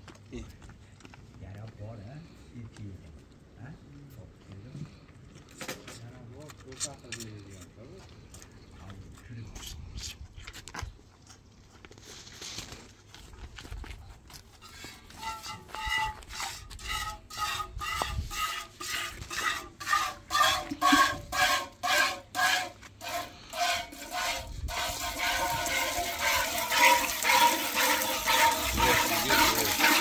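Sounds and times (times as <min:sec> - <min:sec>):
milk squirting into metal bucket: 0:16.4 - 0:30.0.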